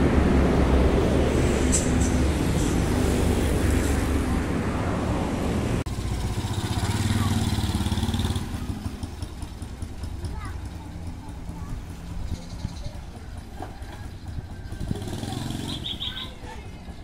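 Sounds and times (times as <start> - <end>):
motorcycle engine running: 5.9 - 17.0
second motorcycle engine: 5.9 - 17.0.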